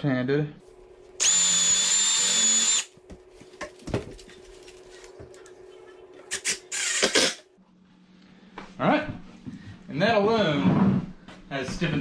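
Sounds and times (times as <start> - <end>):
drill motor whine: 1.2 - 2.9.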